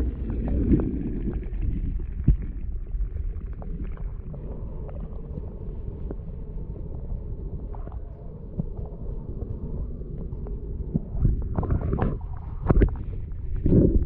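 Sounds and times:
water churning: 0.0 - 6.9
low rumble: 0.0 - 14.0.

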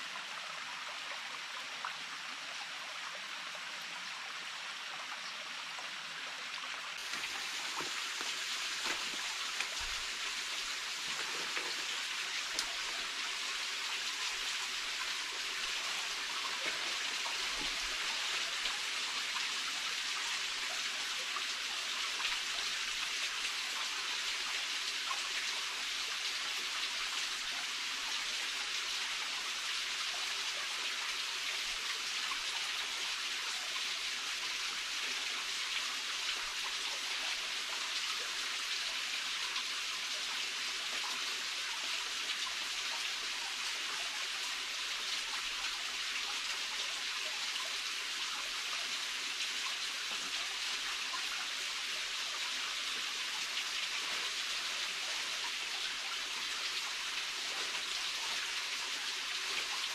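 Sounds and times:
water hissing: 7.0 - 12.9.

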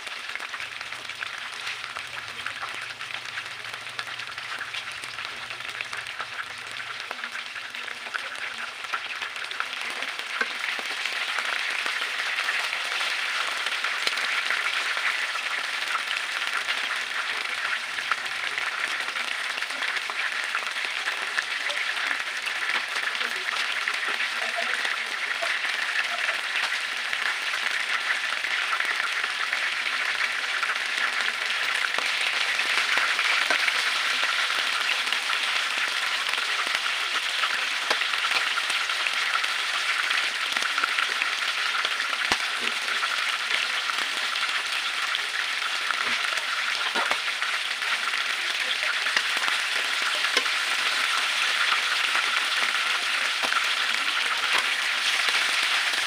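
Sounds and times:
squid sizzling in hot oil: 0.0 - 56.0
oil popping: 45.4 - 48.4.

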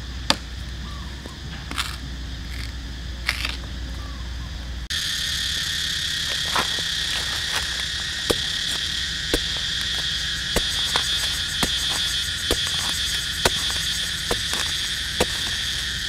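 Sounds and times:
insects droning: 0.0 - 16.0
knife chopping into hard soil: 8.3 - 16.0.

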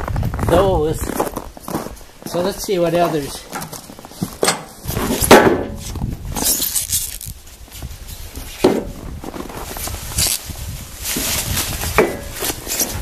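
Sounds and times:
footsteps in snow: 0.0 - 13.0
plastic wrap rustling: 3.2 - 8.3, 9.0 - 13.0.

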